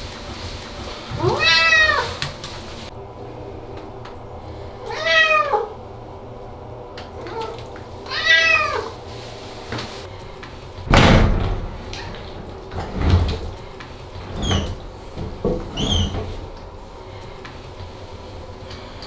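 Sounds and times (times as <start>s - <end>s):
cat meowing: 1.2s - 2.2s, 4.8s - 5.7s, 7.2s - 9.0s
loud thump: 10.9s - 11.9s
folding door knocks and squeaks: 10.9s - 13.6s, 14.2s - 16.5s.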